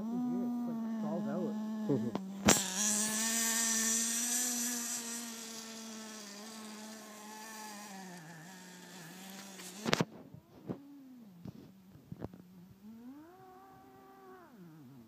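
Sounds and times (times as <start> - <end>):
model car engine high pitch: 0.0 - 10.1.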